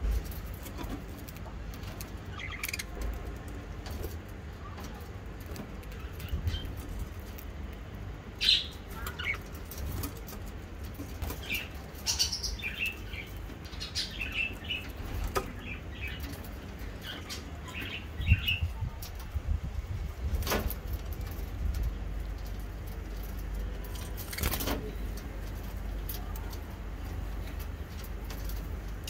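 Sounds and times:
budgerigars chirping: 0:02.3 - 0:03.0.

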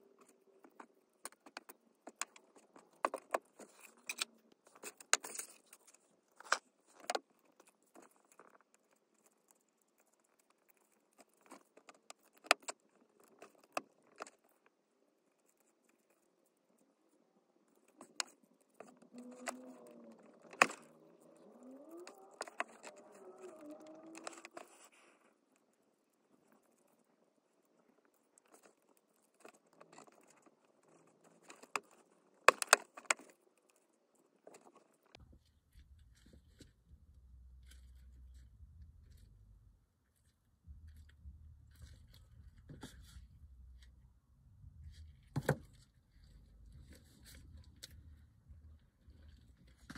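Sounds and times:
plastic toy parts clicking: 0:21.8 - 0:24.7, 0:31.4 - 0:33.4.

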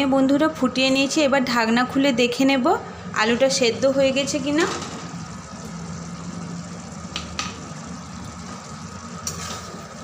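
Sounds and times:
curry boiling and bubbling: 0:02.4 - 0:10.0.

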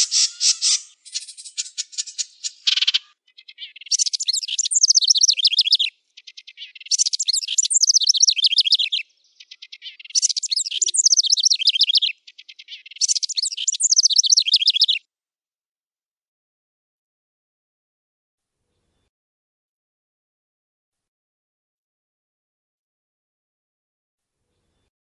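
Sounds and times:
wren singing: 0:00.0 - 0:15.0.

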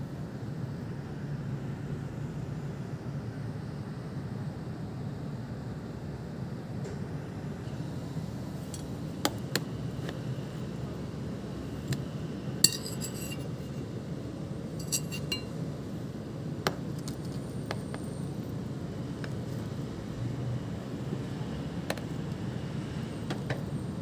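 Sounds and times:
cutlery clinking on dishes: 0:12.6 - 0:13.5, 0:14.8 - 0:15.5.

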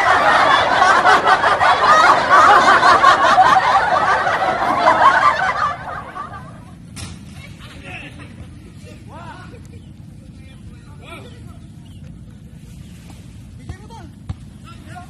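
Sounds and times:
people laughing loudly: 0:00.0 - 0:06.9.

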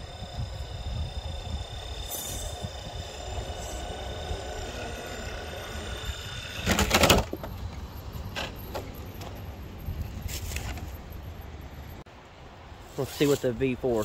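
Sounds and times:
electric motor whining: 0:00.0 - 0:08.7.

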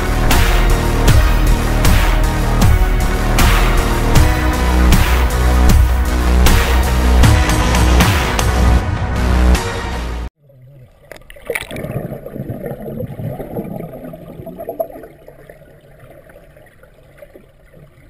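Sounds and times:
loud music: 0:00.0 - 0:10.3
water gurgling and sloshing: 0:10.4 - 0:18.0.

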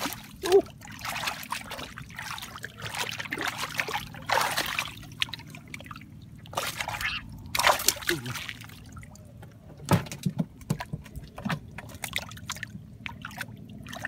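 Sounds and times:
hands splashing in muddy water: 0:00.0 - 0:08.8.

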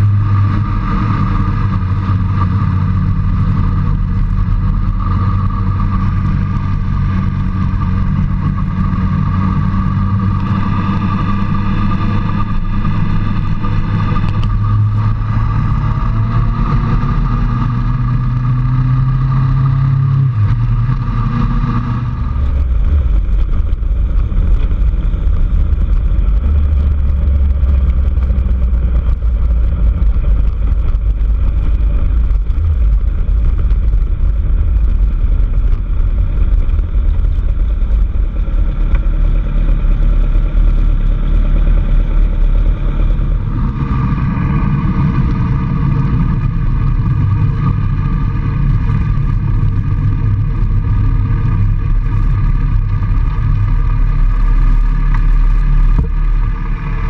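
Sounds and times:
vehicle engine running: 0:00.0 - 0:57.0.

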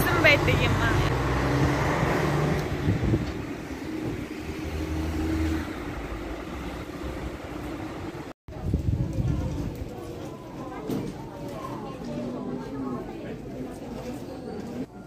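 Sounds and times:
vehicle engines in traffic: 0:00.0 - 0:08.4.

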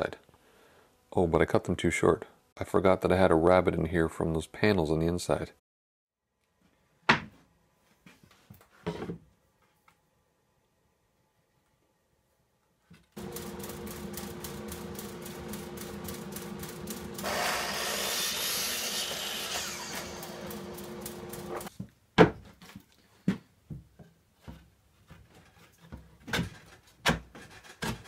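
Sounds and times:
miter saw motor whine: 0:13.2 - 0:21.7
saw blade cutting plywood: 0:17.1 - 0:21.7.

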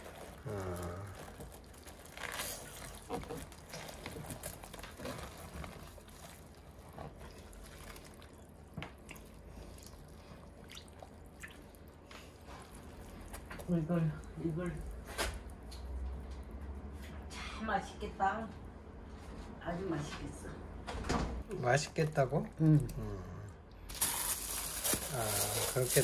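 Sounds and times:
liquid dripping and sloshing: 0:01.1 - 0:17.0, 0:21.5 - 0:23.0.

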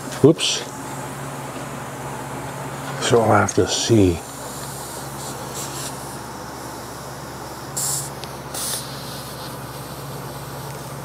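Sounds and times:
hum of shop machinery: 0:00.0 - 0:11.0
compressed air hissing: 0:03.8 - 0:11.0.

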